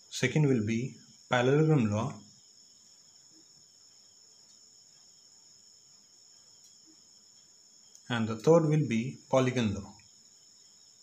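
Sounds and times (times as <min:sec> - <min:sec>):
faint high-pitched whine: 0:00.0 - 0:11.0.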